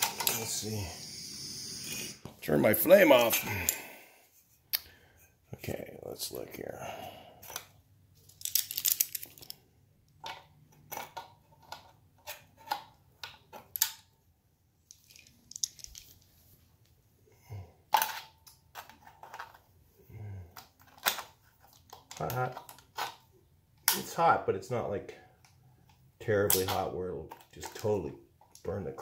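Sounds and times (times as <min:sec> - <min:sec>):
locking pliers clicking and clinking: 0:08.3 - 0:09.6.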